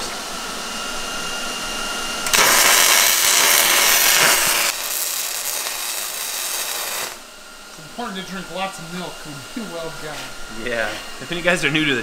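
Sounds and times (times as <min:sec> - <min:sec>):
welder background hum: 0:00.0 - 0:12.0
welding arc hissing: 0:02.2 - 0:07.3.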